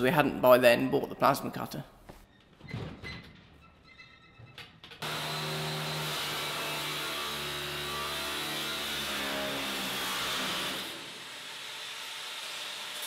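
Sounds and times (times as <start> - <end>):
angle grinder cutting steel: 5.0 - 13.0.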